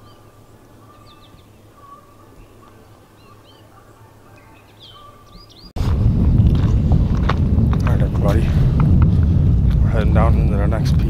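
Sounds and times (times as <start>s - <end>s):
songbirds chirping faintly: 0.0s - 5.8s
low steady hum: 0.0s - 11.0s.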